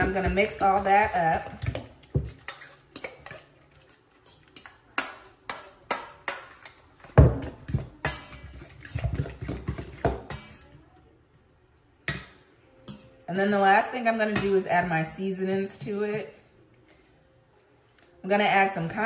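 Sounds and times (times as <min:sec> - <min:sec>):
fork clinking against metal bowl: 0:00.0 - 0:10.7, 0:12.1 - 0:13.6, 0:14.2 - 0:14.9, 0:15.5 - 0:16.3.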